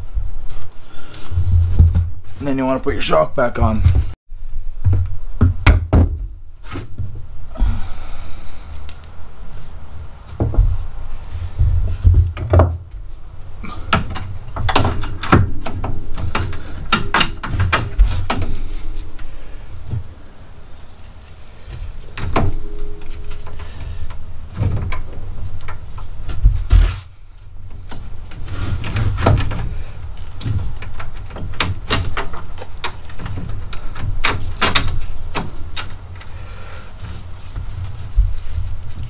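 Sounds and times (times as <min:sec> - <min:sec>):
metal clanks and knocks of tools: 0:08.7 - 0:09.2, 0:13.9 - 0:18.6.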